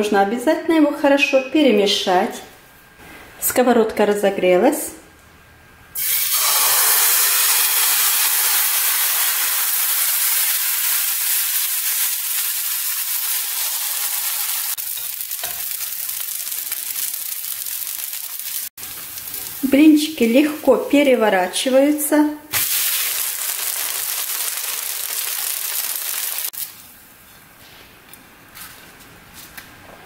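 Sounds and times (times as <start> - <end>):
batter sizzling in a pan: 6.0 - 20.9, 22.5 - 26.8.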